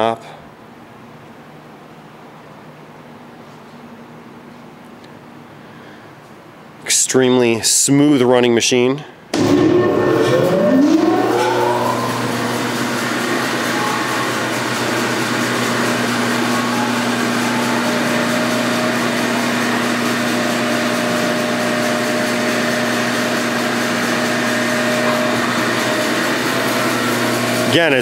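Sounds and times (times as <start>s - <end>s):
bandsaw motor hum: 9.3s - 28.0s.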